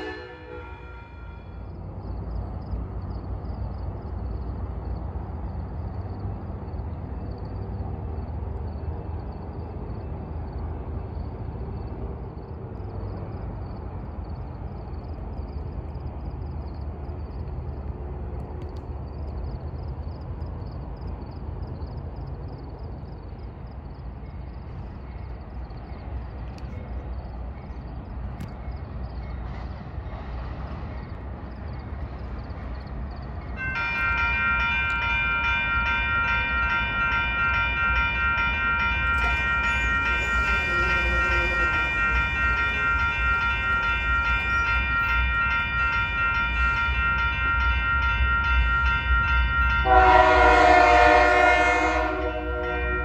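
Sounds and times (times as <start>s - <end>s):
insects chirping: 0.0s - 49.8s
distant train approaching: 0.0s - 53.0s.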